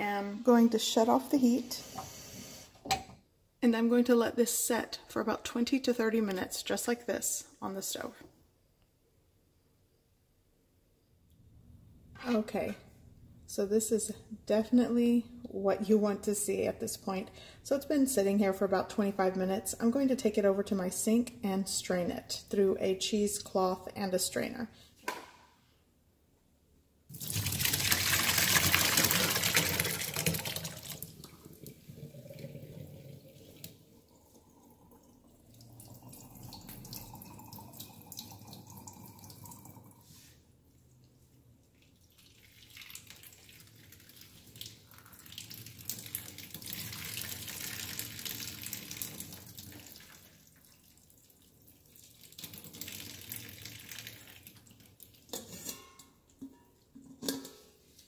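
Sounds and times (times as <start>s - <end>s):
liquid splashing into steel sink: 27.1s - 39.9s, 41.7s - 57.8s.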